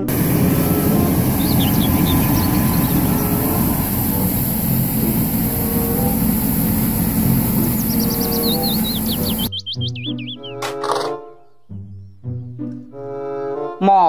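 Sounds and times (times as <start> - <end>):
street sweeper truck running: 0.0 - 9.5
faint chirps: 0.1 - 10.6.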